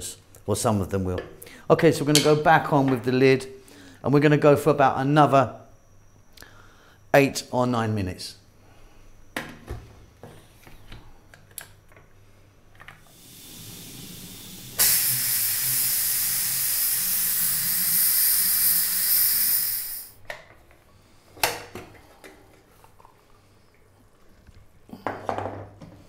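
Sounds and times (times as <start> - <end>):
steam hissing from valve: 13.1 - 20.2.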